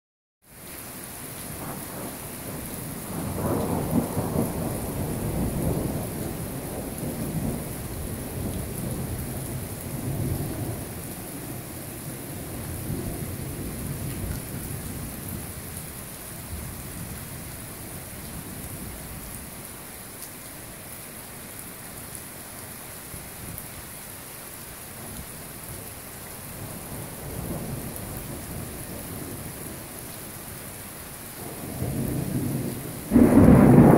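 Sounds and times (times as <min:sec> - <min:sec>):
steady falling rain: 0:00.4 - 0:33.9
thunder rumbling: 0:01.6 - 0:15.4, 0:31.4 - 0:33.9.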